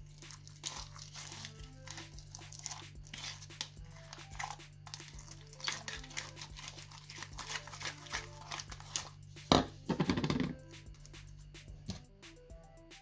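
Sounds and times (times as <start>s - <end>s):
slime squelching in a bowl: 0.0s - 9.8s.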